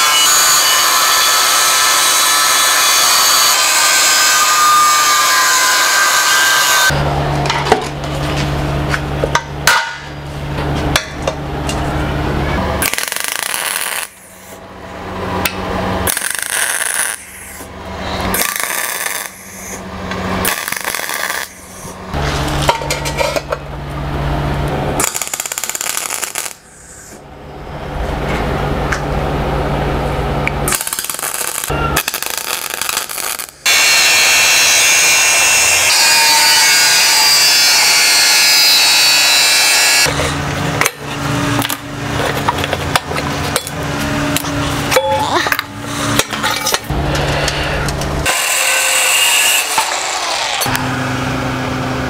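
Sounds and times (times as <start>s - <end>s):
welding bursts: 12.8s - 14.6s, 16.0s - 17.7s, 18.3s - 19.8s, 20.4s - 22.0s, 25.0s - 27.1s, 30.6s - 40.0s.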